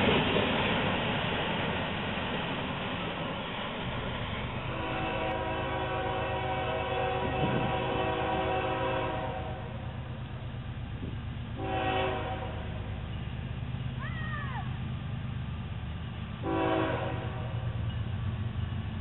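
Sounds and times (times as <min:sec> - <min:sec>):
low rumble of train: 0:00.0 - 0:19.0
locomotive air horn: 0:04.6 - 0:09.8, 0:11.6 - 0:12.9, 0:16.4 - 0:17.7.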